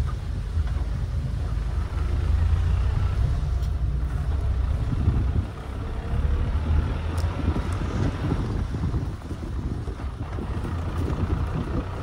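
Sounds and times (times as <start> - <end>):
car rumbling on dirt track: 0.0 - 12.0.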